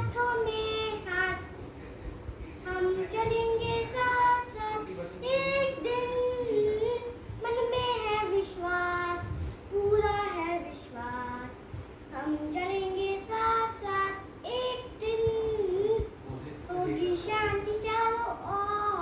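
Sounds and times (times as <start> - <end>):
girl singing unaccompanied: 0.0 - 1.6, 2.6 - 19.0.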